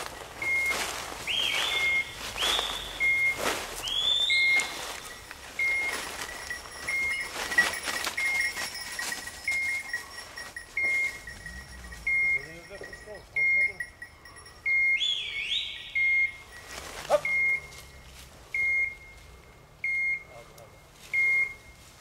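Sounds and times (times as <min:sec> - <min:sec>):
rustles and clicks: 0:00.0 - 0:14.6, 0:16.2 - 0:19.4
beeper collar high beep: 0:00.0 - 0:21.9
rising whistle-like tones: 0:00.4 - 0:06.0, 0:14.6 - 0:16.4.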